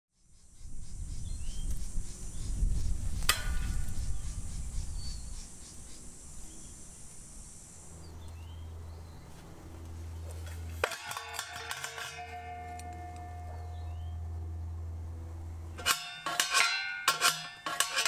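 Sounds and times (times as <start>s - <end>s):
bird chirps: 0.2s - 7.1s, 7.8s - 9.4s, 12.8s - 14.3s
insects buzzing: 0.2s - 17.9s
low steady hum: 0.6s - 18.0s
low rumble: 12.2s - 15.8s.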